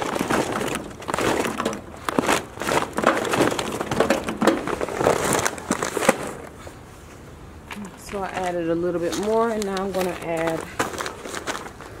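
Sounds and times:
charcoal clattering onto coals: 0:00.0 - 0:06.5
paper bag crinkling: 0:00.0 - 0:06.5, 0:08.3 - 0:12.0.

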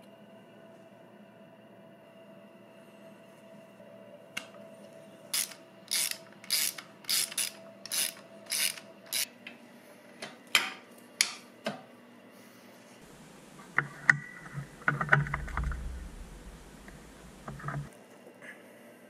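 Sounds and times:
socket ratchet clicking: 0:05.4 - 0:09.3
low rumble: 0:14.5 - 0:17.9.

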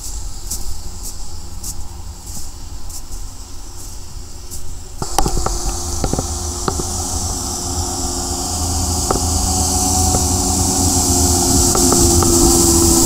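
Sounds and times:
metallic clanks of tracks: 0:05.0 - 0:13.0
tracked vehicle engine humming: 0:05.0 - 0:13.0.

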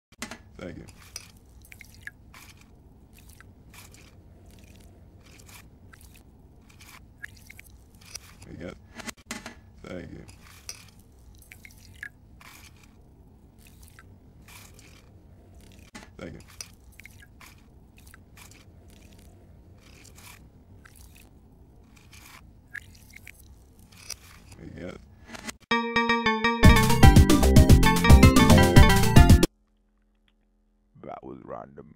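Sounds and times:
spoon scraping sugar: 0:00.8 - 0:08.9, 0:10.2 - 0:24.6.

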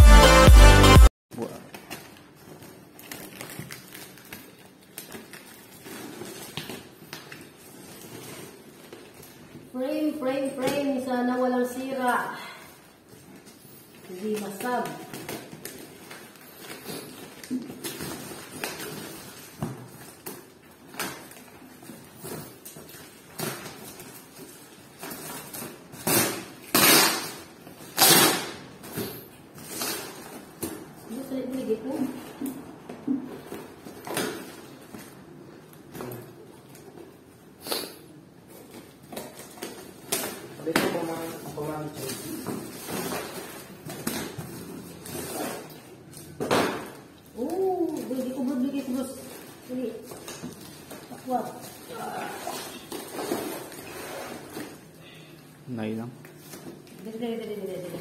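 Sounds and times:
tape and cardboard tearing: 0:22.2 - 0:30.8, 0:38.6 - 0:48.2, 0:49.3 - 0:54.8
scissors cutting packing tape: 0:22.6 - 0:30.8.

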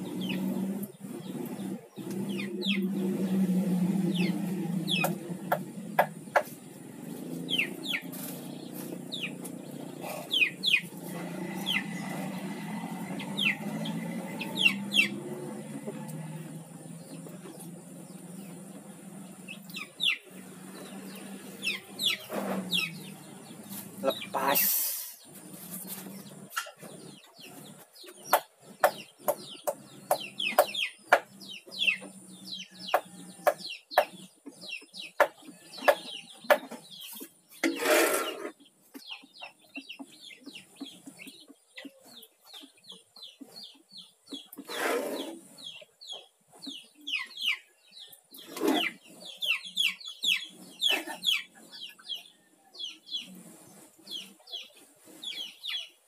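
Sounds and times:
chickens clucking: 0:00.0 - 0:56.0
brief hissing bursts: 0:24.6 - 0:25.3.

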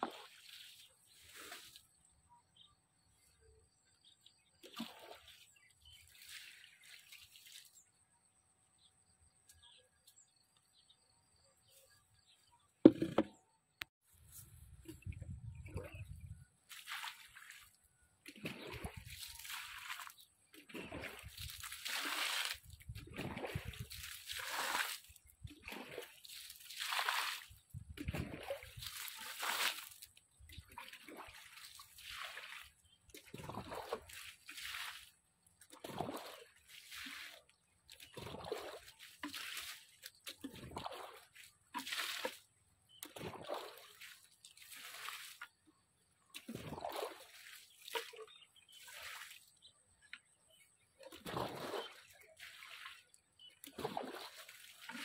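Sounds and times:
water splashing on plants: 0:00.0 - 0:02.0, 0:04.6 - 0:08.0, 0:16.6 - 0:45.6, 0:46.2 - 0:50.2, 0:51.0 - 0:55.0.

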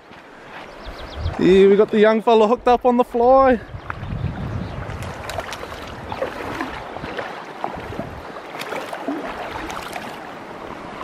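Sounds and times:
river water rushing: 0:04.9 - 0:11.0
fish splashing at surface: 0:08.5 - 0:10.3.

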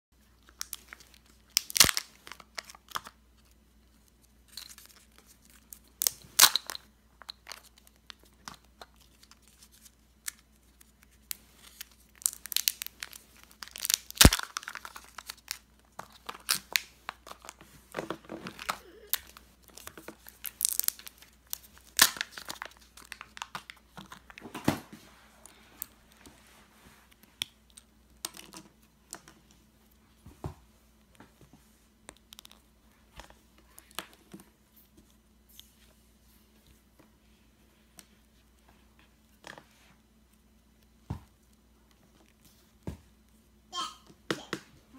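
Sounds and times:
plastic wrapper crinkling and tearing: 0:00.4 - 0:17.6, 0:18.4 - 0:24.5.

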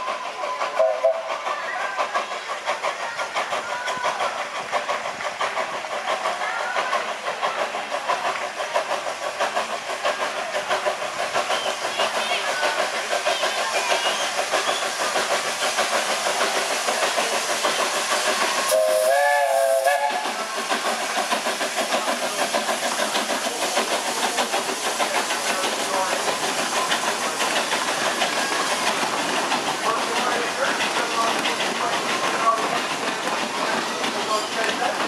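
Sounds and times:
steam locomotive chuffing: 0:00.0 - 0:35.0
steam whistle blast: 0:18.7 - 0:20.3.

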